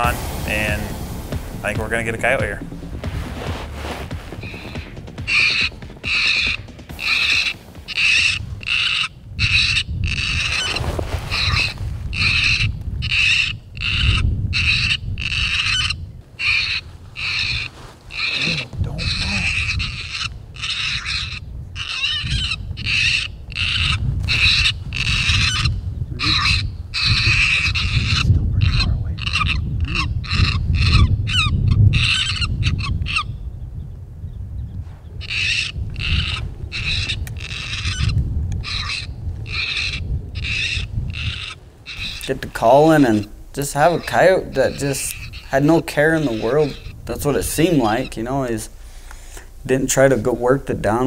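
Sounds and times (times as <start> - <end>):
low rumble: 0.0 - 14.6
low wind rumble: 0.0 - 51.0
prey distress cries: 4.4 - 33.2, 35.2 - 48.8
high-pitched electronic animal cry: 4.5 - 10.6, 11.4 - 33.2, 35.3 - 42.3.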